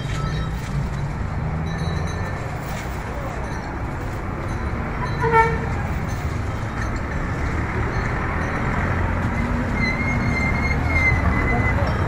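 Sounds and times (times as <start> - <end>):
street commotion: 0.0 - 12.0
traffic: 0.0 - 12.0
loud horn toot: 5.0 - 5.8.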